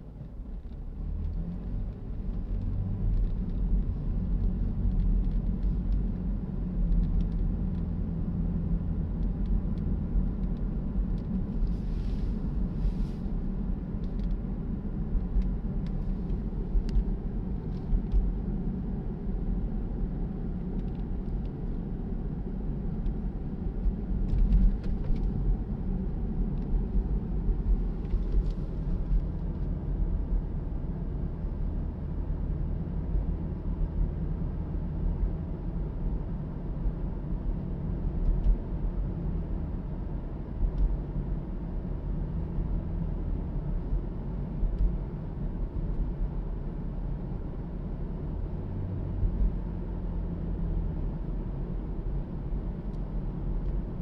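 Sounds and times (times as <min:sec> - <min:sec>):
car cabin rumble: 0:00.0 - 0:32.1
faint clicks and light knocks: 0:06.8 - 0:07.9.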